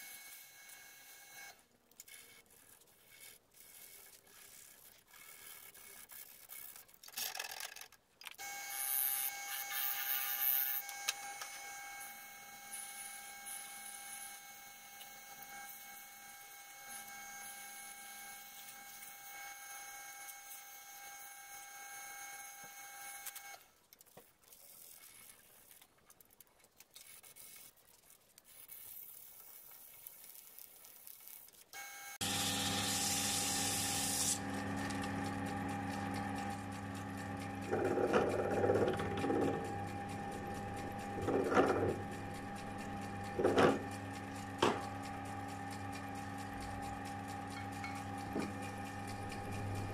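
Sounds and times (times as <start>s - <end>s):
wood lathe motor whining: 0.0s - 1.6s, 8.4s - 23.6s, 31.8s - 49.9s
sandpaper on spinning wood: 32.2s - 36.4s.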